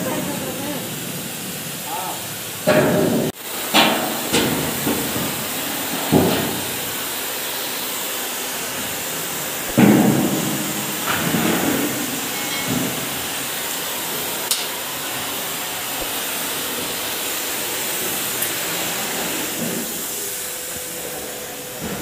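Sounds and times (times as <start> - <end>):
cutting torch hissing: 0.0 - 22.0
metal knocks: 9.7 - 13.1.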